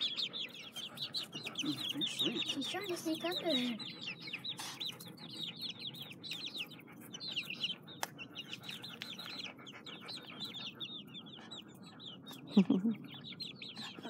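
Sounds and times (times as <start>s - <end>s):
chicks peeping: 0.0s - 14.0s.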